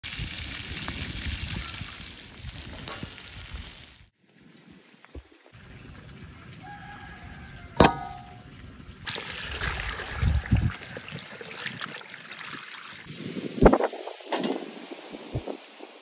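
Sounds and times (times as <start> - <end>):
water splashing and sloshing: 4.3 - 14.9
hose water pouring into metal bowl: 5.6 - 13.3
sharp knock with ringing: 7.8 - 8.4.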